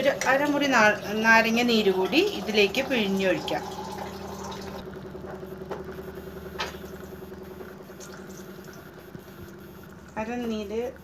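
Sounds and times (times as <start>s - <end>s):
low motor hum: 0.0s - 11.0s
faint fast crackle: 4.8s - 11.0s.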